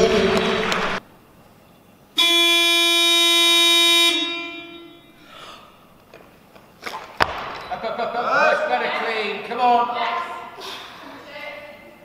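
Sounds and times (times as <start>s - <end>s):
electronic warning buzzer: 2.2s - 5.1s.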